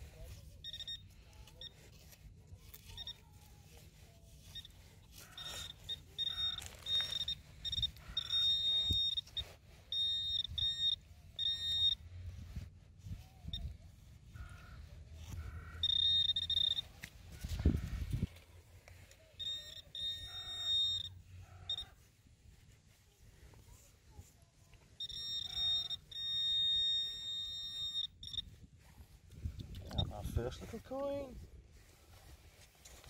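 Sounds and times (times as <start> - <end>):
long steady detector tones: 0.0 - 33.0
metal detector probe beeping: 0.2 - 12.5, 13.2 - 13.8, 14.4 - 18.0, 19.0 - 22.0, 24.8 - 29.1.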